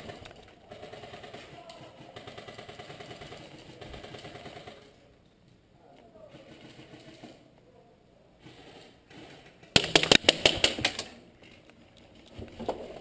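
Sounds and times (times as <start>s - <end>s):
airsoft gun burst: 8.5s - 11.1s.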